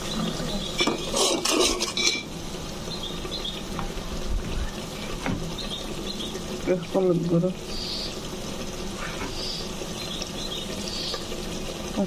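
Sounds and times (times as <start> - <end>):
low sizzle of frying paste: 0.0 - 12.0
metal spoon scraping a pot: 0.8 - 2.3.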